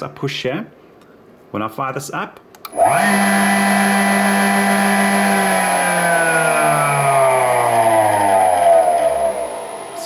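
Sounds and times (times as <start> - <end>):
electric motor whine: 2.7 - 10.0.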